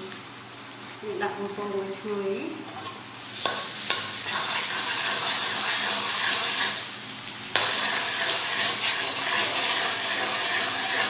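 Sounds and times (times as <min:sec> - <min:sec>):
garlic sizzling in hot oil: 0:00.7 - 0:11.0
metal spatula stirring: 0:02.8 - 0:06.8, 0:07.5 - 0:11.0.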